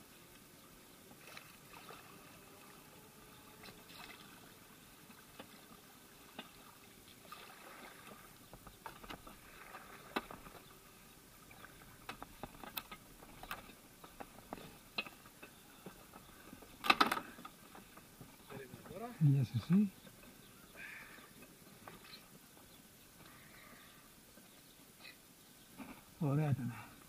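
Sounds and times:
paddle swishing in water: 0:03.6 - 0:15.3.

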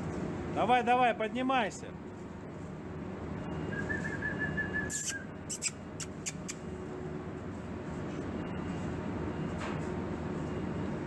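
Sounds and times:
person whistling: 0:03.7 - 0:05.7.

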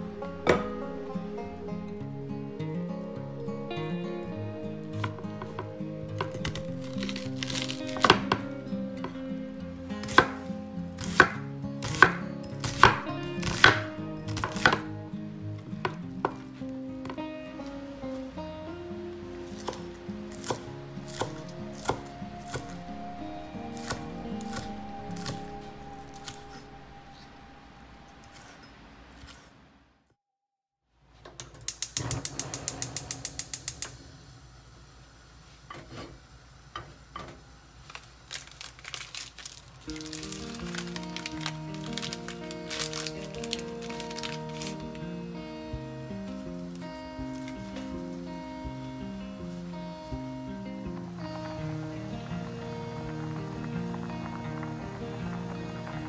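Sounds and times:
gas stove igniter clicking: 0:31.4 - 0:34.0.

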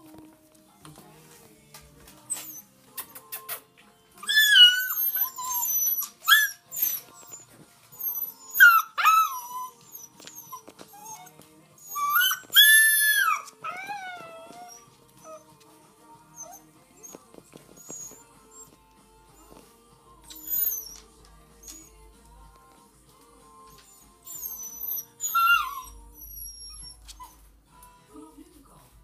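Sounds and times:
puppies howling and whining: 0:04.2 - 0:15.6, 0:16.3 - 0:18.8, 0:20.2 - 0:22.0, 0:23.7 - 0:27.5.

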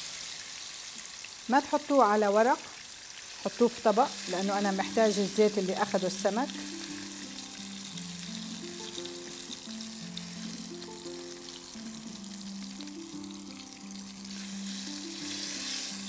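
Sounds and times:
fish sizzling in hot oil: 0:00.0 - 0:16.0
soft background music: 0:03.5 - 0:16.0.

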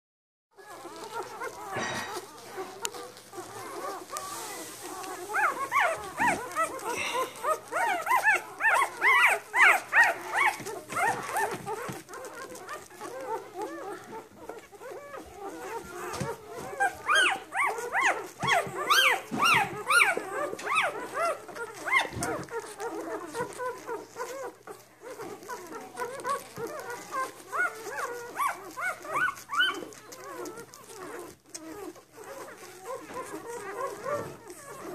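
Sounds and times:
puppies squeaking and whimpering: 0:00.6 - 0:34.9.

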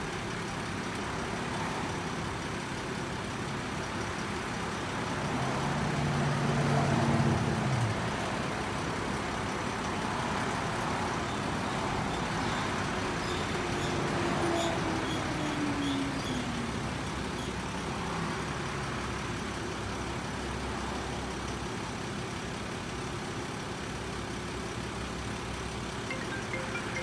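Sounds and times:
vehicle engine drone: 0:00.0 - 0:27.0
tone gliding down in pitch: 0:26.1 - 0:27.0.

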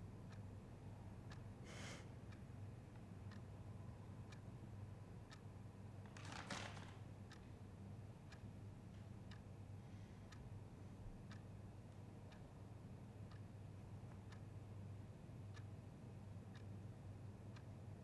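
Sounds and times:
low steady hum: 0:00.0 - 0:18.0
clock ticking: 0:00.3 - 0:00.5, 0:01.2 - 0:01.5, 0:03.2 - 0:04.6, 0:05.2 - 0:05.5, 0:07.3 - 0:07.5, 0:08.3 - 0:08.6, 0:09.2 - 0:09.6, 0:11.2 - 0:15.8, 0:16.5 - 0:17.9.

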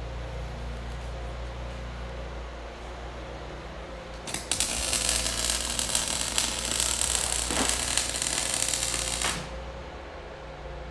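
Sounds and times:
arc welding crackling and hissing: 0:04.2 - 0:09.7.

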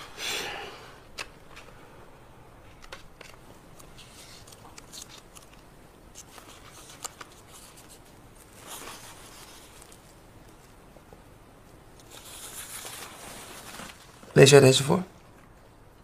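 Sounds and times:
notebook pages rustling: 0:02.7 - 0:10.8, 0:12.0 - 0:14.5.

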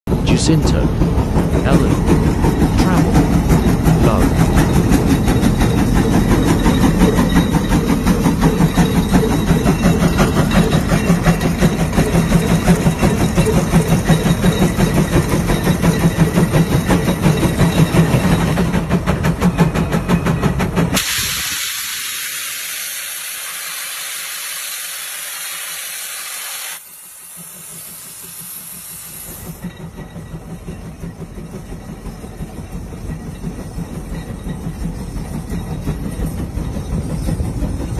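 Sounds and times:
steam engine exhaust chuffing: 0:00.1 - 0:37.9
steam hissing: 0:20.7 - 0:30.2.

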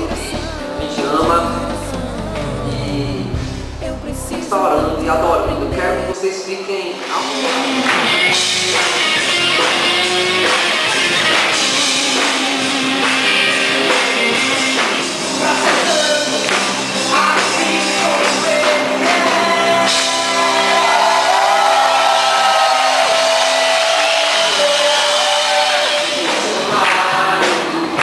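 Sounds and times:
steady drum beat: 0:00.0 - 0:06.2, 0:07.2 - 0:28.0
electric guitars: 0:00.0 - 0:28.0
person singing: 0:00.0 - 0:28.0.

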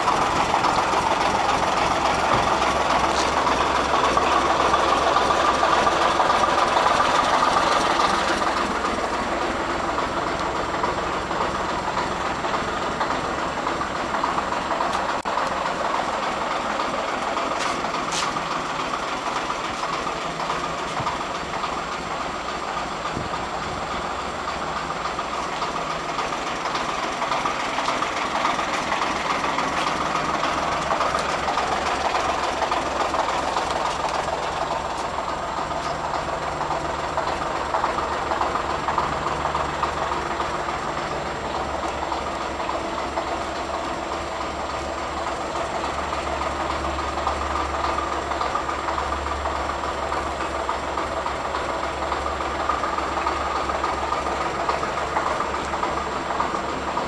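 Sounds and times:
diesel engine running steadily: 0:00.0 - 0:57.0.

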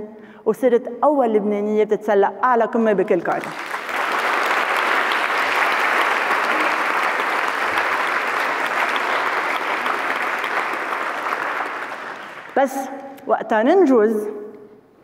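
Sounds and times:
audience applauding: 0:03.4 - 0:12.6.

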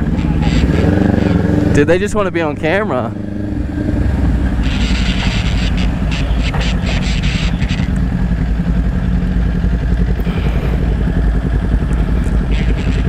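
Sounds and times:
motorcycle engine cruising: 0:00.0 - 0:13.0.

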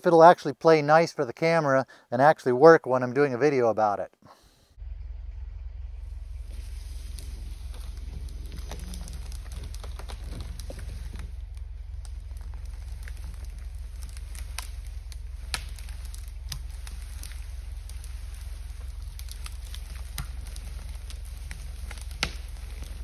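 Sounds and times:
steady low rumble: 0:04.7 - 0:23.0
log dragged through brush: 0:06.0 - 0:23.0
twigs crackling and snapping: 0:06.1 - 0:23.0.

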